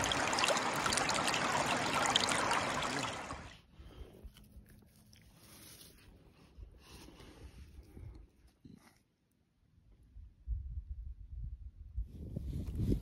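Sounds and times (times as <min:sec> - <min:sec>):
stream rippling over stones: 0:00.0 - 0:03.6.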